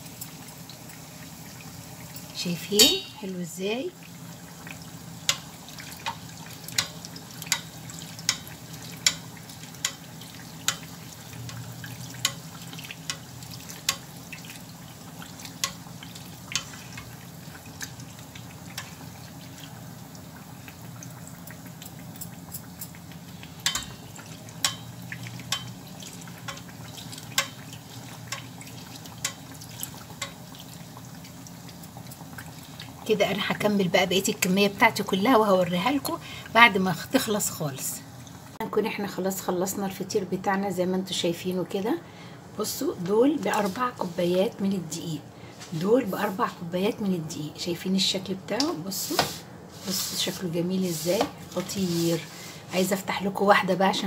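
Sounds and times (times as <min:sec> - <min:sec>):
oil sizzling: 0:00.0 - 0:41.8, 0:42.6 - 0:54.0
metal spoon clicking against pan: 0:06.8 - 0:09.2, 0:09.8 - 0:10.0, 0:10.6 - 0:11.6, 0:12.2 - 0:12.4, 0:23.6 - 0:23.9, 0:24.6 - 0:24.9, 0:25.5 - 0:25.8, 0:27.4 - 0:27.6.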